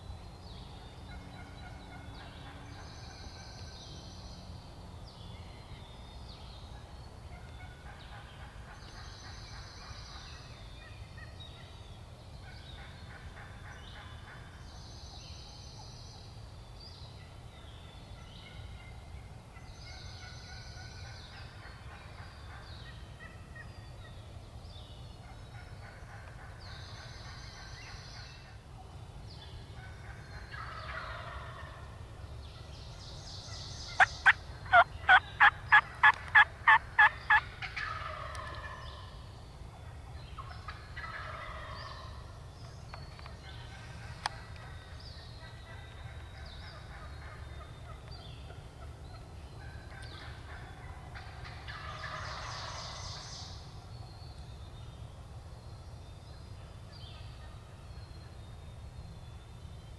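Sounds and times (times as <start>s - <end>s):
songbird singing: 0.0s - 59.9s
turkey calling: 33.9s - 39.0s, 40.4s - 42.1s, 49.6s - 53.0s.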